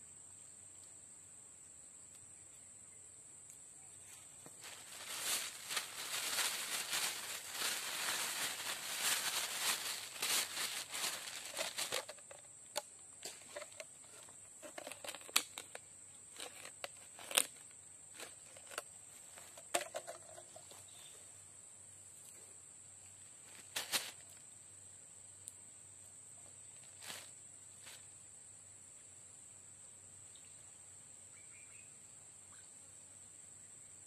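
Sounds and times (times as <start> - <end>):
high insect drone: 0.0 - 34.0
rustling and crinkling: 4.0 - 21.2, 23.4 - 24.4, 26.7 - 28.1.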